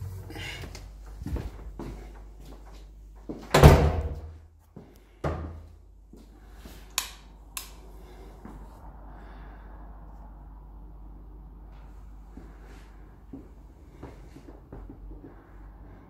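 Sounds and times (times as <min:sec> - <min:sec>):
door thudding: 0:03.5 - 0:04.3
sharp clicks: 0:06.9 - 0:07.8.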